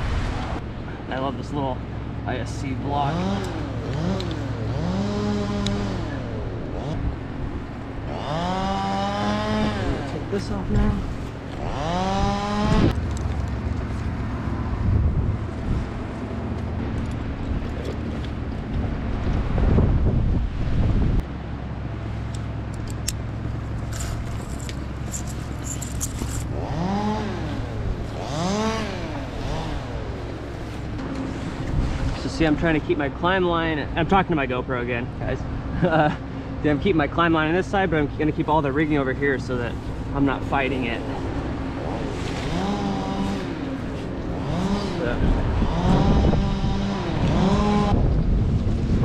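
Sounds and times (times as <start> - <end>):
low engine hum: 0.0 - 49.0
chainsaw revving: 2.9 - 7.2, 8.0 - 13.0, 23.9 - 30.4, 40.6 - 48.0
rope and hardware scraping clicking: 22.3 - 26.6.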